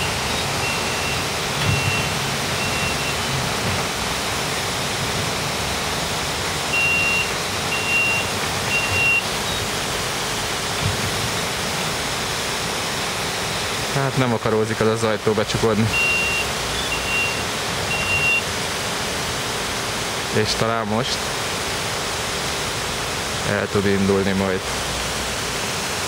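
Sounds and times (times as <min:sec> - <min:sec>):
door warning beeps: 0:00.0 - 0:03.4, 0:06.7 - 0:09.8, 0:15.8 - 0:18.5
steady rushing background noise: 0:00.0 - 0:26.0.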